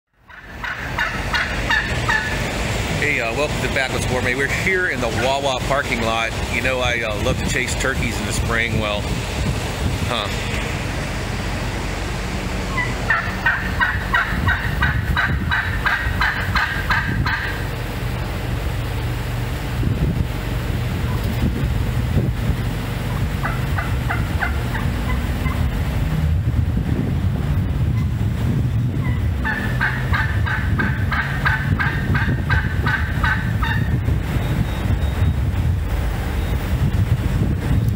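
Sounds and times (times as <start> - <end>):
steady low rumble: 0.1 - 37.9
wild turkey calling: 0.2 - 2.4, 12.7 - 17.7, 23.1 - 25.7, 29.0 - 33.9.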